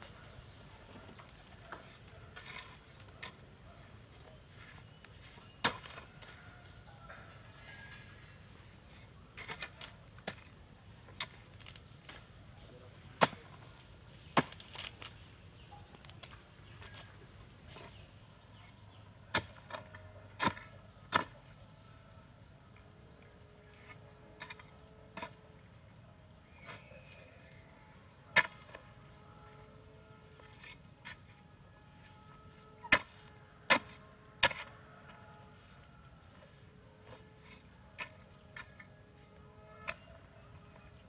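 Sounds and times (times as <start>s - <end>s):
earth scraping: 0.0s - 22.1s, 22.8s - 41.0s
hand hoe striking dry soil: 4.6s - 6.4s, 19.3s - 21.6s, 28.4s - 28.8s, 32.8s - 34.8s.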